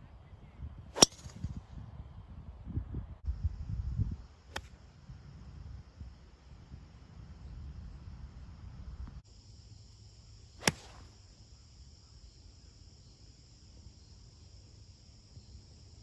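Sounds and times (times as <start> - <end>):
golf club striking ball: 1.0 - 1.4, 10.6 - 11.1
insects chirring: 3.2 - 16.0.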